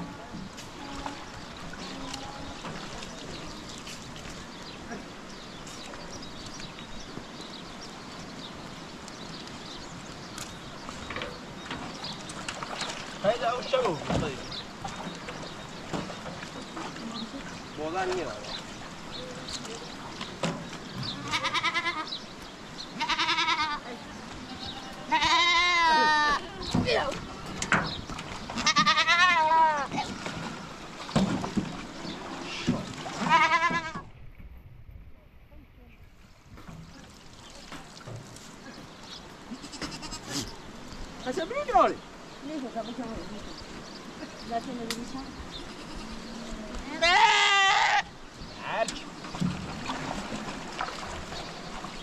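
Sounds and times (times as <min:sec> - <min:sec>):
sheep and goats moving about: 0:00.0 - 0:34.1, 0:36.6 - 0:52.0
livestock bleating: 0:21.2 - 0:22.2, 0:23.0 - 0:23.9, 0:24.5 - 0:26.5, 0:28.6 - 0:29.9, 0:33.2 - 0:34.0, 0:39.5 - 0:40.4, 0:45.6 - 0:48.8.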